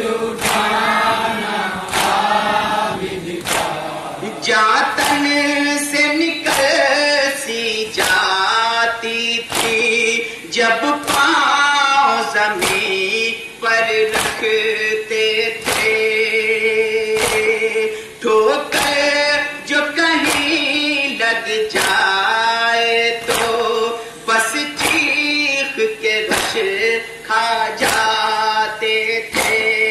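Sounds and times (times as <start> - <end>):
man singing lament into microphone: 0.0 - 29.9
mourners chanting: 0.0 - 29.9
hands slapping chests: 0.4 - 0.9, 1.9 - 2.4, 3.4 - 3.8, 5.0 - 5.3, 6.5 - 6.8, 8.0 - 8.3, 9.5 - 9.9, 12.6 - 12.9, 14.1 - 14.5, 15.6 - 16.0, 17.1 - 17.6, 20.2 - 20.6, 21.8 - 22.0, 23.2 - 23.7, 24.8 - 25.2, 26.3 - 26.7, 27.8 - 28.2, 29.3 - 29.8.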